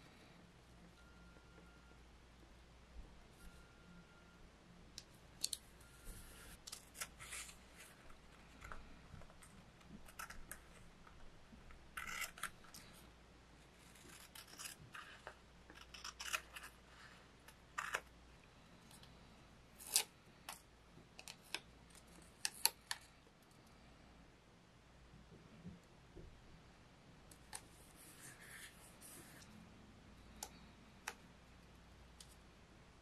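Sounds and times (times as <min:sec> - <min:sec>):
scissors snipping paper: 0:13.9 - 0:16.8.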